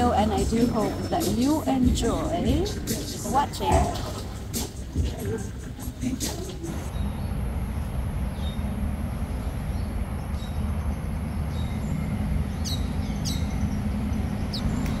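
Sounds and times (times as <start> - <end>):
low outdoor rumble: 0.0 - 15.0
high falling bird chirps: 6.9 - 15.0.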